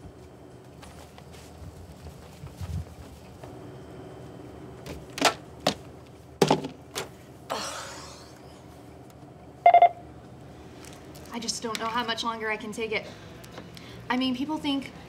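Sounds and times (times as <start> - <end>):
brief pitched tone: 9.7 - 10.0.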